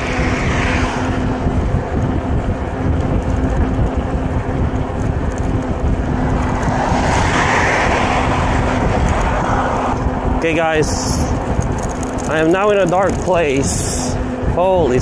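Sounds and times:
car passing: 0.0 - 2.7, 5.0 - 12.9
bicycle tyre noise: 0.0 - 15.0
wind buffeting microphone: 0.0 - 15.0.

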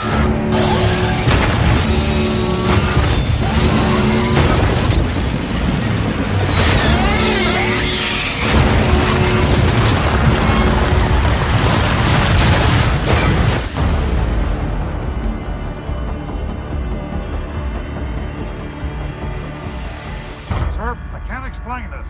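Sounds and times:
metallic screeching: 0.0 - 5.2, 6.4 - 11.1
dramatic orchestral music: 0.0 - 22.0
heavy booms and crashes: 1.2 - 14.8.

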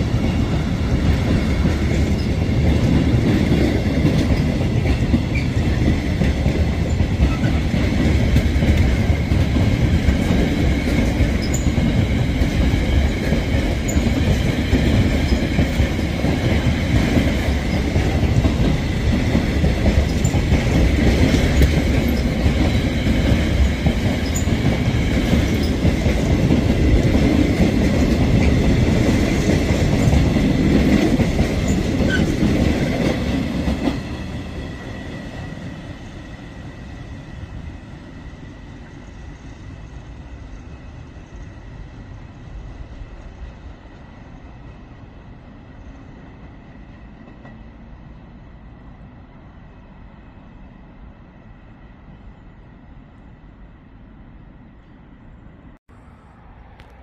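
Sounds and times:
freight train wheel rumble: 0.0 - 57.0
high wheel squeal: 11.4 - 11.8.

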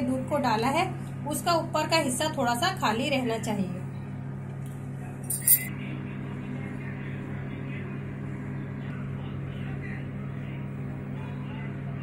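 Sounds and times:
microwave oven humming: 0.0 - 12.0
glassy clink: 5.2 - 5.7.

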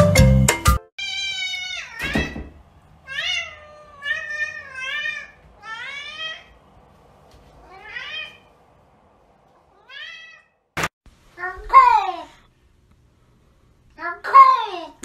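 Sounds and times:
cat meowing: 1.0 - 6.6, 7.6 - 8.5, 9.7 - 10.6.

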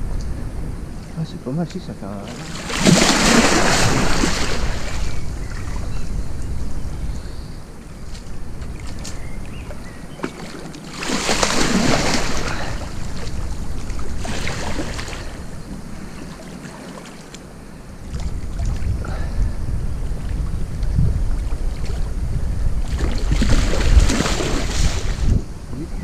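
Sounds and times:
wind rumbling on microphone: 0.0 - 26.0
fish splashing at surface: 2.3 - 5.2, 10.2 - 13.2.

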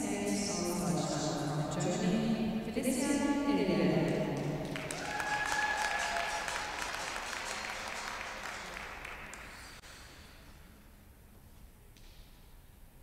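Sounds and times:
audience applauding: 4.4 - 9.8.

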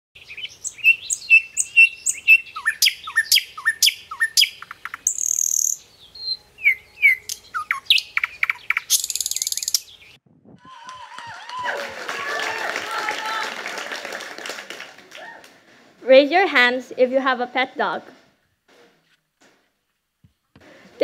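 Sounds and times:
birds chirping and singing: 0.2 - 10.2
buzzing bird trill: 1.2 - 10.0.

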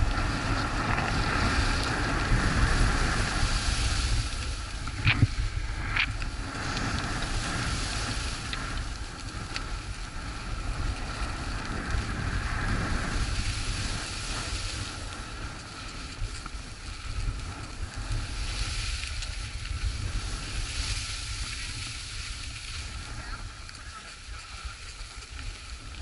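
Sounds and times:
skis scraping on snow: 0.0 - 26.0
wind buffeting microphone: 0.0 - 26.0.

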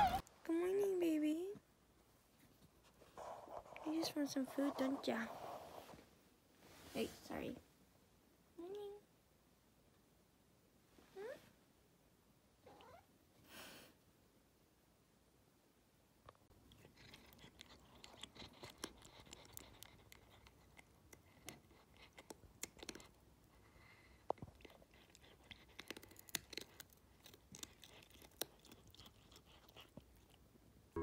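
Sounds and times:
cat crunching food: 16.5 - 30.5.

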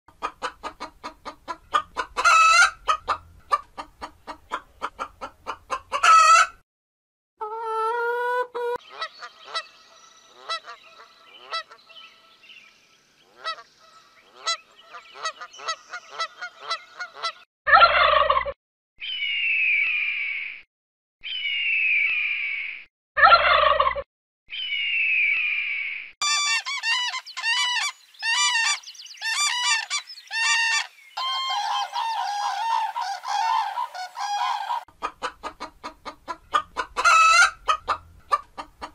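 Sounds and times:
chickens clucking: 0.1 - 6.6, 7.4 - 9.7, 26.2 - 38.9
chicken squawks: 0.2 - 6.6, 7.4 - 9.7, 10.3 - 11.8, 14.3 - 18.6, 23.2 - 24.0, 26.2 - 38.9
goose honking: 14.3 - 17.4, 26.2 - 34.8.

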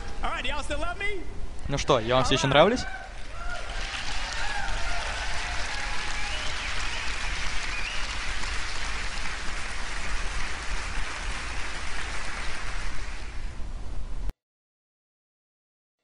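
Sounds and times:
large audience applauding: 2.4 - 13.5.

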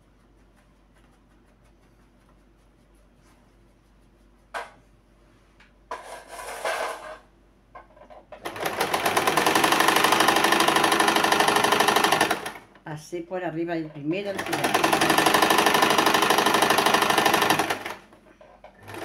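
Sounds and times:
sewing machine stitching: 8.4 - 12.7, 14.2 - 18.2, 18.8 - 19.0.

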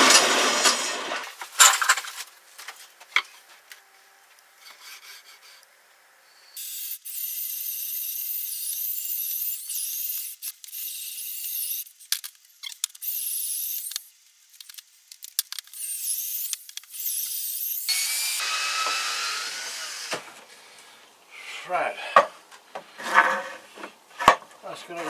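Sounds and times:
hand tool scraping workpiece: 4.6 - 5.7, 21.5 - 25.0
cordless drill running: 15.9 - 20.2.

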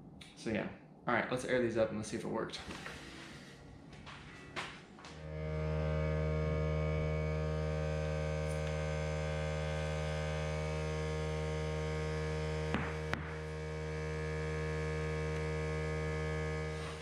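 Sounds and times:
air compressor motor hum: 11.8 - 17.0.

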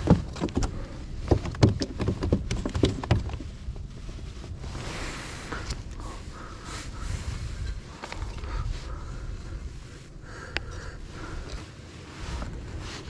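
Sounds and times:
hollow knocks on plastic kayak: 0.0 - 3.4
soft rustle: 0.0 - 13.0.

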